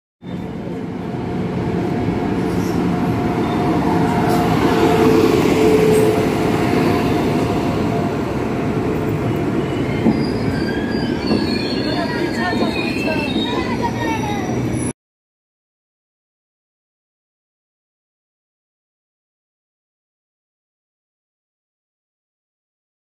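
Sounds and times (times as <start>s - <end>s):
locomotive hum: 0.3s - 14.9s
train wheels rumbling on rails: 0.3s - 14.9s.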